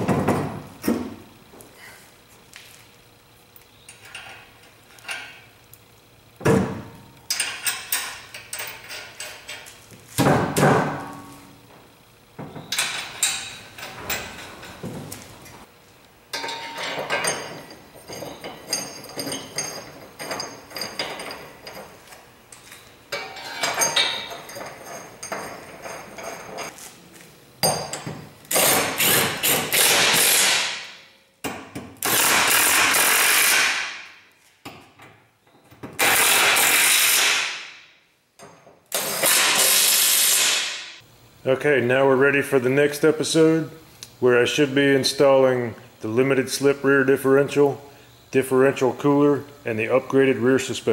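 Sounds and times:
metal clinks: 16.3 - 26.7
impact wrench bursts: 28.5 - 31.0, 32.0 - 34.0, 36.0 - 37.7, 38.9 - 40.9.

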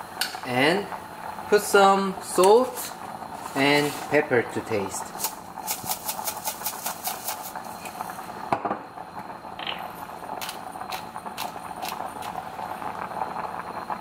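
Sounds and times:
soup boiling in a pot: 0.0 - 14.0
pepper grinder grinding: 5.2 - 7.5.

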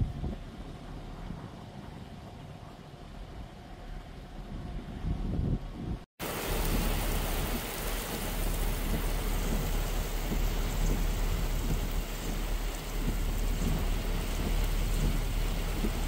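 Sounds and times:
low rumble: 0.0 - 16.0
heavy rain hissing: 6.2 - 16.0.

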